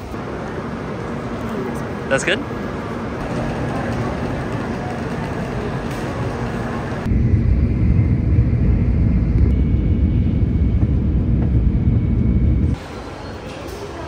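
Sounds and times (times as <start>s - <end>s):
station platform noise: 0.0s - 14.0s
train cabin rumble: 3.2s - 12.8s.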